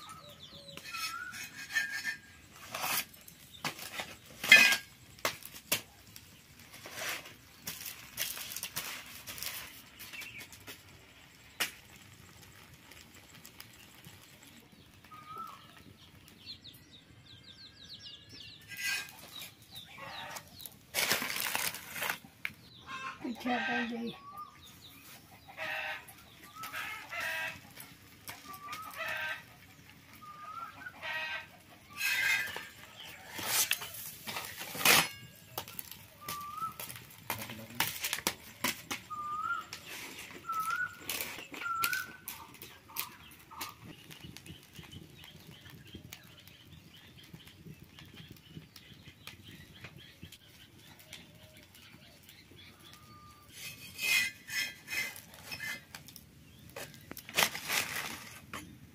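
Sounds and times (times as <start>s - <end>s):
chickens clucking: 22.8s - 24.2s, 25.0s - 34.0s
clicks and rustles: 32.0s - 46.2s, 53.5s - 58.8s.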